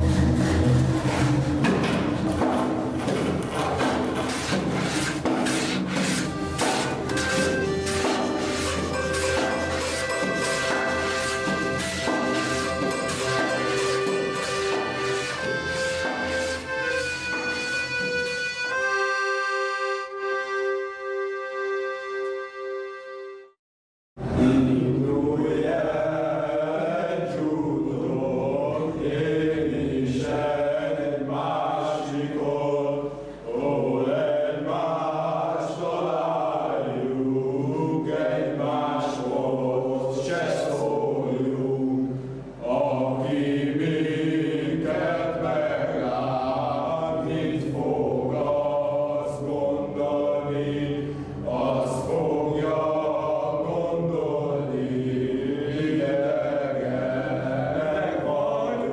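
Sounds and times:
men singing folk song together: 0:24.5 - 0:58.9.

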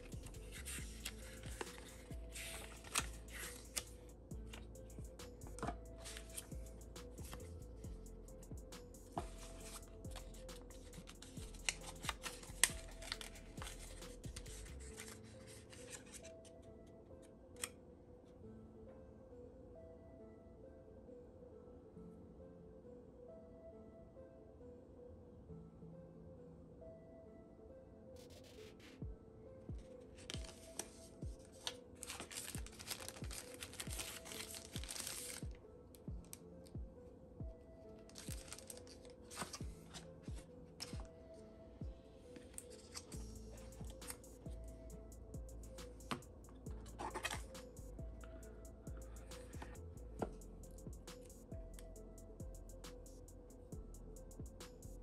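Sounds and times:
music with deep kick drums: 0:00.0 - 0:14.9, 0:29.0 - 0:29.8, 0:43.2 - 0:55.0
paper and plastic packing rustling: 0:00.5 - 0:03.8, 0:11.0 - 0:16.4, 0:30.2 - 0:35.6, 0:38.1 - 0:41.1, 0:47.0 - 0:47.5
sharp crinkles and clicks: 0:29.8 - 0:35.6, 0:38.0 - 0:41.1.

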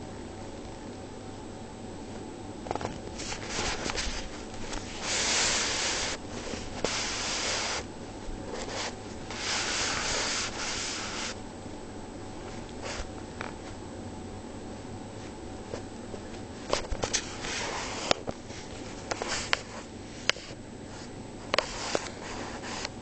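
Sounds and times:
rough rubbing and scraping: 0:03.2 - 0:07.9, 0:08.5 - 0:11.4.

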